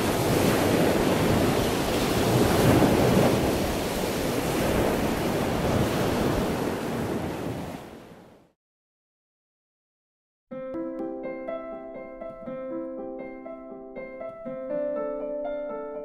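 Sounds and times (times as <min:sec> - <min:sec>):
ocean waves breaking: 0:00.0 - 0:08.4.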